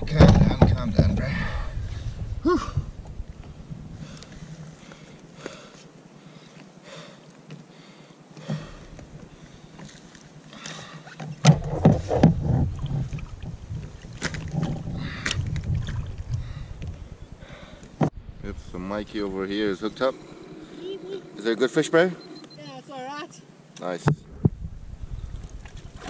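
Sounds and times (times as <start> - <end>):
water lapping against kayak hull: 8.4 - 18.1, 24.2 - 26.0
fish knocking and thumping: 11.2 - 16.4.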